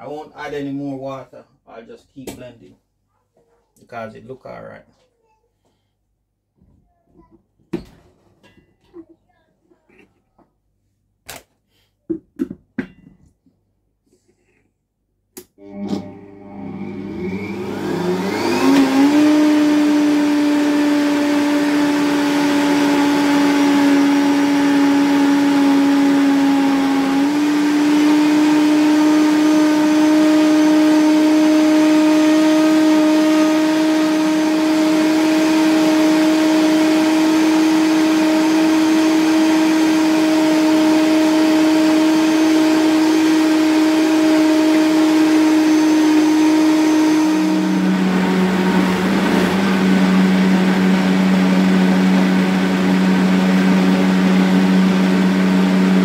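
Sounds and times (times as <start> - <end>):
blender motor running: 15.4 - 56.0.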